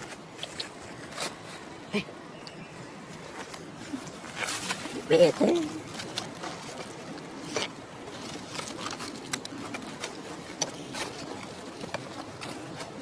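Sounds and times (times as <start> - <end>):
dry leaves rustling and clicking: 3.2 - 13.0.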